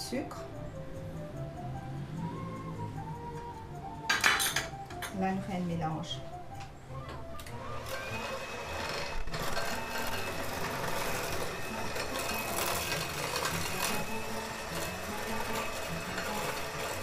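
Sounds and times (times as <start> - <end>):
electric hand mixer whining: 7.1 - 17.0.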